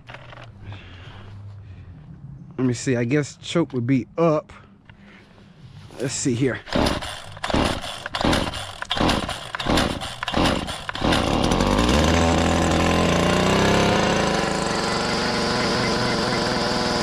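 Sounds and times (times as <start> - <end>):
recoil starter cord pulls: 0.0 - 0.5, 6.6 - 17.0
string trimmer engine running: 6.5 - 17.0.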